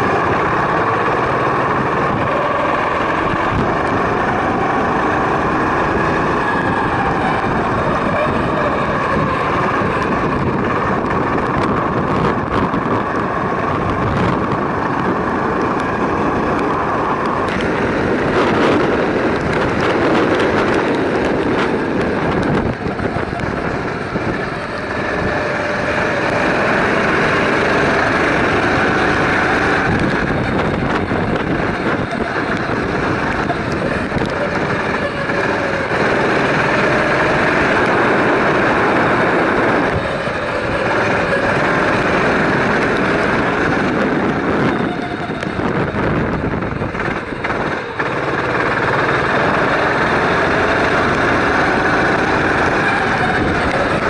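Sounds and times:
go-kart engine running: 0.0 - 54.0.

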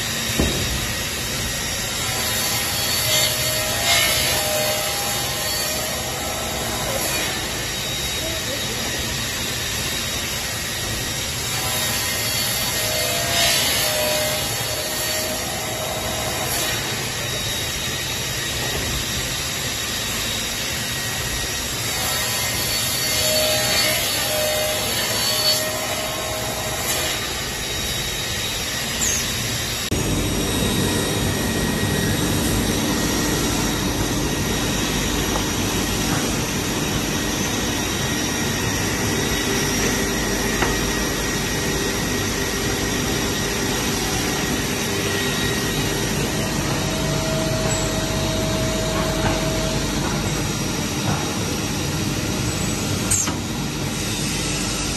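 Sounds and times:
saw blade cutting wood: 0.0 - 30.0
panel saw motor whine: 19.8 - 50.8
low machine hum: 29.9 - 54.9.

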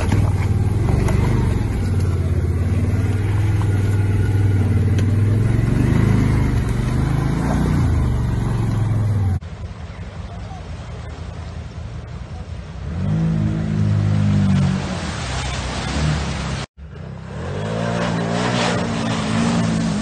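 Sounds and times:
tyres spinning in mud: 0.0 - 8.8.

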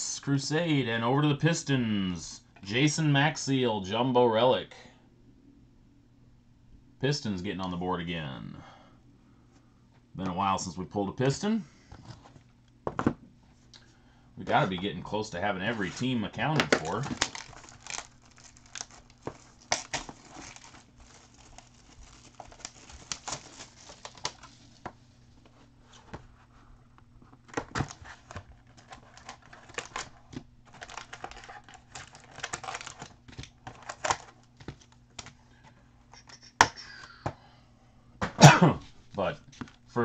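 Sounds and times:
wrapping crinkling and tearing: 15.8 - 24.8, 27.6 - 35.3.

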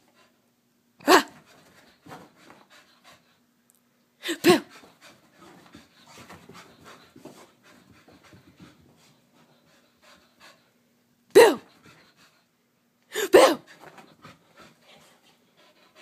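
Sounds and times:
dog panting: 1.4 - 3.4, 4.5 - 10.8, 11.6 - 12.5, 13.7 - 16.0.

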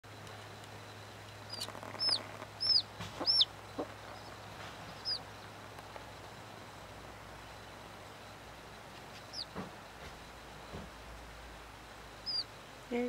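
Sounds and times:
chick peeping: 1.5 - 6.0, 8.9 - 9.6, 12.2 - 12.5.

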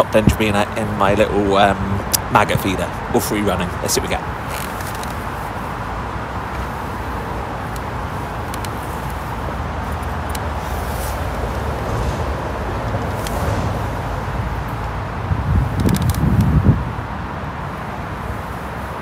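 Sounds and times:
road traffic rumble: 0.0 - 19.0
faint clicks: 7.7 - 9.2.

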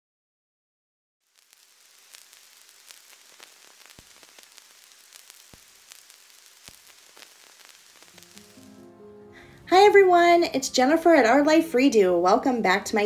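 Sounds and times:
record surface hiss and crackle: 1.2 - 10.7
record pops: 1.3 - 8.9.

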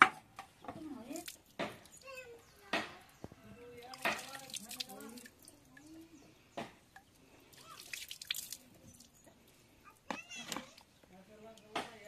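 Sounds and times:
water pattering on wet ground: 0.8 - 2.0, 3.2 - 6.0, 6.9 - 9.3
water splashing: 3.7 - 6.1, 6.9 - 9.3.

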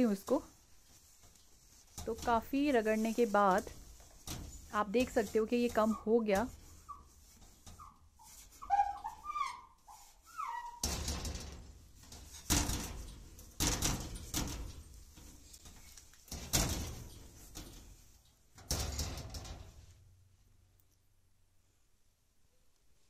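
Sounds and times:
wipe scrubbing on glass: 0.0 - 18.4
short squeaks: 6.8 - 11.2.

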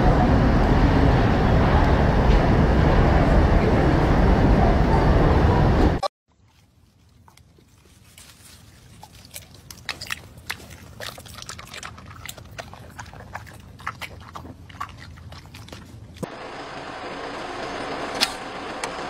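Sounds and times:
dog chewing with jaw smacks: 6.4 - 16.3.

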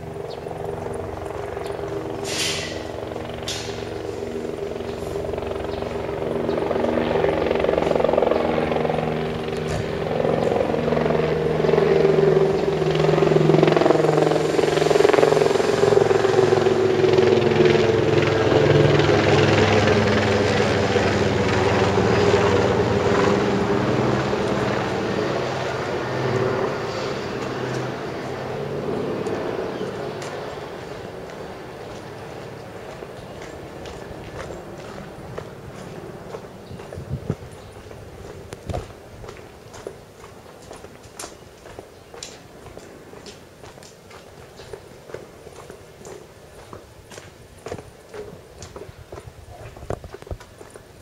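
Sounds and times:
helicopter engine and rotor drone: 0.0 - 51.0.

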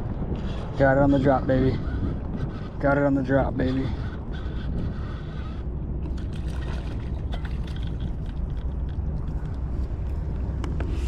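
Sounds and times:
steady low rumble: 0.0 - 11.0
water splashing and gurgling: 6.0 - 10.0.

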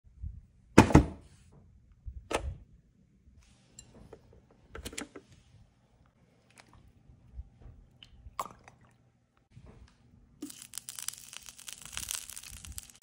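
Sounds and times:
small ticks and rustles: 10.5 - 13.0.

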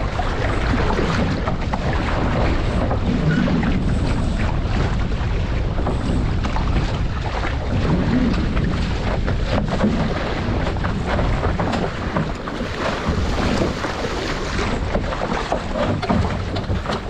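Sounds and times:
low rumble: 0.0 - 17.0
water slapping against hull: 0.0 - 17.0
water splashes: 0.0 - 17.0
wind buffeting microphone: 0.0 - 17.0.

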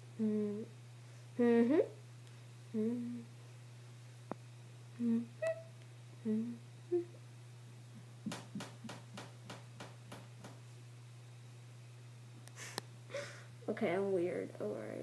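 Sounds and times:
low electrical hum: 0.0 - 15.0
girl humming with closed mouth: 0.2 - 0.8, 2.7 - 3.4, 4.9 - 7.2.

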